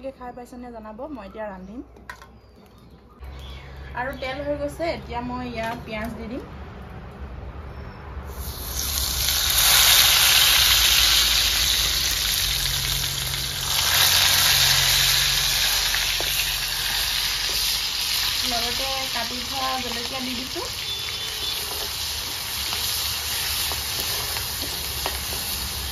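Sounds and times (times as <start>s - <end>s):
onion sizzling in hot oil: 8.3s - 25.9s
metal spoon stirring in wok: 20.8s - 25.9s.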